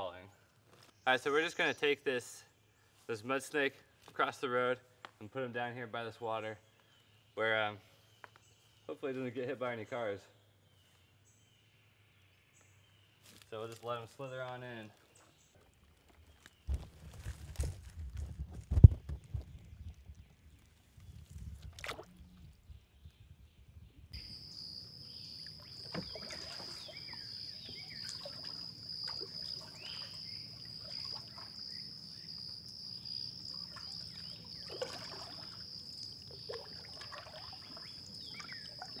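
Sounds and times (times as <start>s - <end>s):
high insect drone: 24.2s - 39.0s
short chirping calls: 24.2s - 39.0s.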